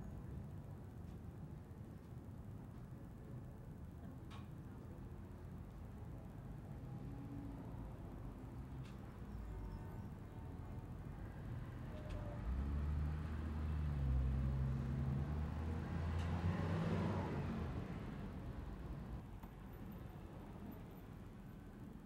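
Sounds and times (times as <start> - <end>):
vehicle driving past: 12.3 - 19.1.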